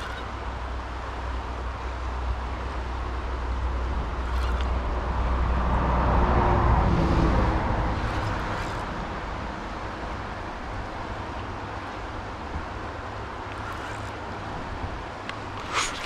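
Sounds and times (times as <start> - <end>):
vehicle road rumble: 0.0 - 16.0.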